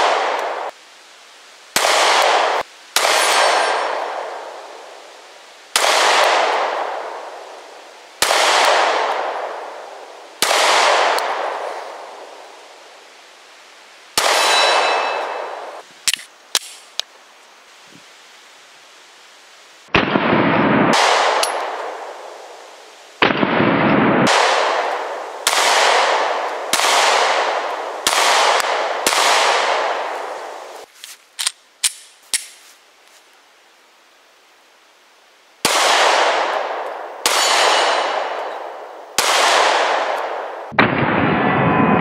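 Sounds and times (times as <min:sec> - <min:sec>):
pistol shots echoing: 0:01.8 - 0:04.4, 0:05.8 - 0:07.2, 0:08.2 - 0:09.8, 0:10.4 - 0:11.6, 0:14.2 - 0:15.6, 0:20.0 - 0:22.0, 0:23.2 - 0:30.1, 0:35.6 - 0:41.5.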